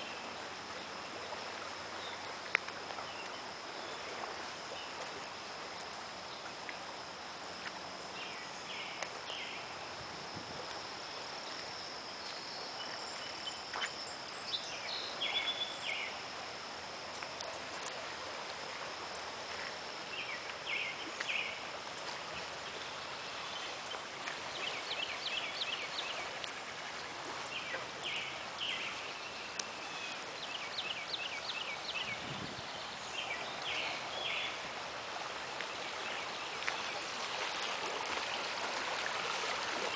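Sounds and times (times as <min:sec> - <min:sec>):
thin high whine: 0:00.0 - 0:27.1
creek rushing: 0:00.0 - 0:39.9.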